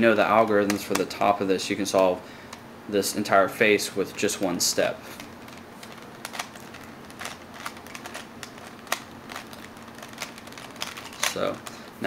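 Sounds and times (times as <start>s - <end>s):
puzzle cube clicking and rattling: 5.1s - 12.0s.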